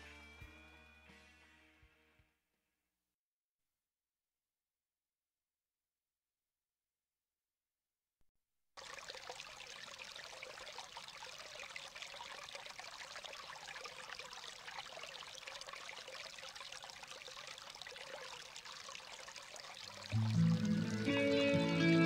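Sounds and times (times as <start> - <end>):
water trickling: 8.8 - 22.0.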